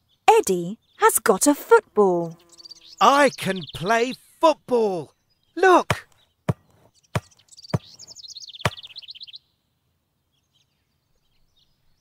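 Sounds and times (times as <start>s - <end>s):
bird twittering: 2.2s - 9.5s
football being kicked: 5.9s - 8.0s.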